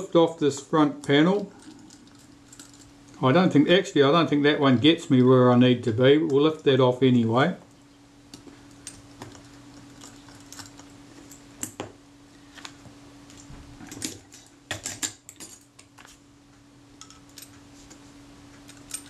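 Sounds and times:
faint steady hum: 0.0 - 19.0
small tools clicking on metal parts: 1.0 - 2.9, 18.6 - 19.0.

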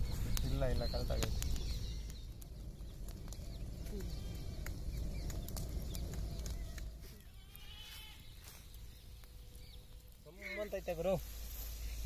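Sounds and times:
sharp pops: 0.0 - 7.0
wood fire crackling: 0.0 - 12.0
low steady rumble: 1.4 - 7.5.

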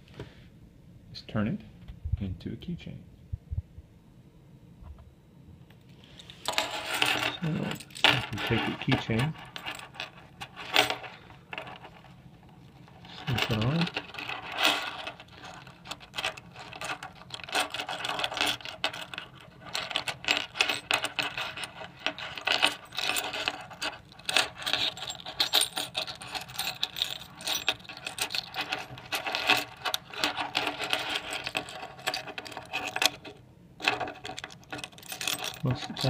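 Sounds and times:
keys jingling on a ring: 12.7 - 33.3, 33.9 - 36.0.

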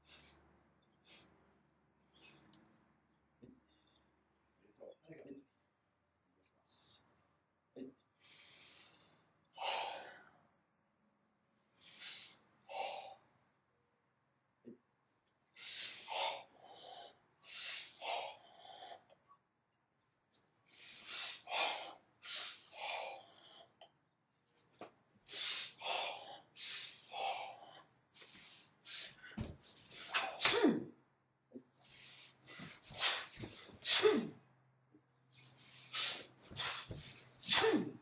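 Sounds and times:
hissing breath exhalations: 25.3 - 30.4, 35.4 - 37.7.

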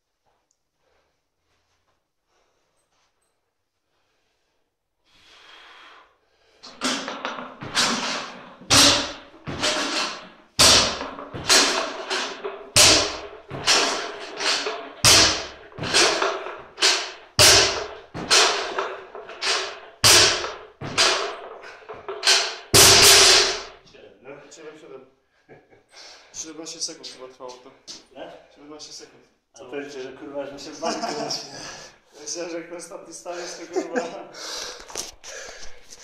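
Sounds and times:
bar and plates clanking: 6.6 - 23.8
barbell plates thudding on floor: 6.6 - 23.8.

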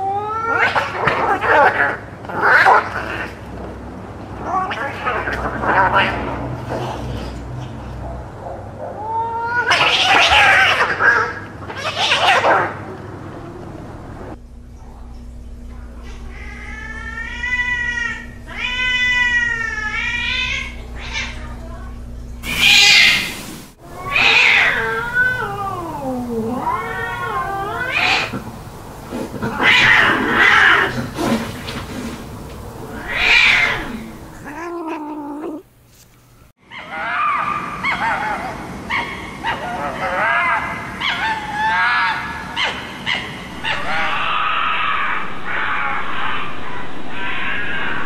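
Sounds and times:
cats screaming and yowling: 0.0 - 3.6, 4.3 - 14.4, 15.8 - 21.8, 22.4 - 35.7, 36.6 - 48.0
fox barking and calling: 22.4 - 31.7, 36.6 - 48.0.

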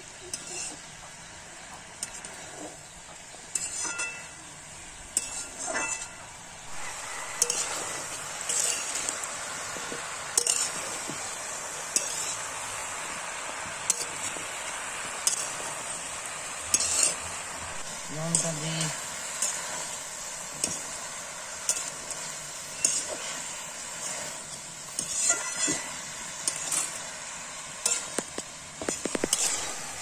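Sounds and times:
food sizzling in a pan: 0.0 - 30.0
metal cookware clinking: 3.4 - 9.3, 10.3 - 11.0, 11.9 - 12.5, 13.8 - 14.4, 15.2 - 16.0, 16.6 - 17.3, 20.5 - 23.5, 24.4 - 27.0, 27.8 - 29.8.

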